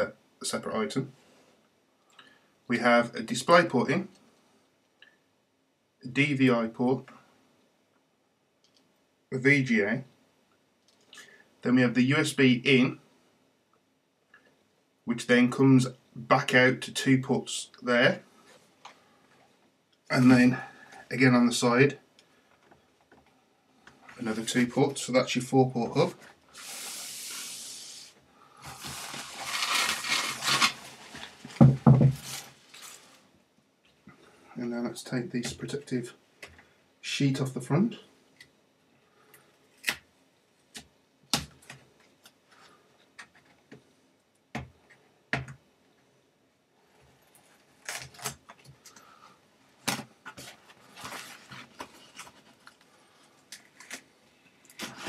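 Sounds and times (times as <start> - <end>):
steady hiss: 23.5 - 33.5
plastic sheeting rustling: 28.6 - 33.3, 50.4 - 52.7.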